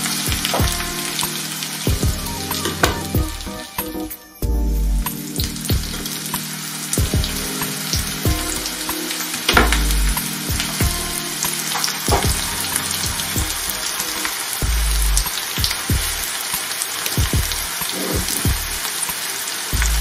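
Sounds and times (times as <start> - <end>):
potatoes sizzling in frying pan: 18.7 - 19.8.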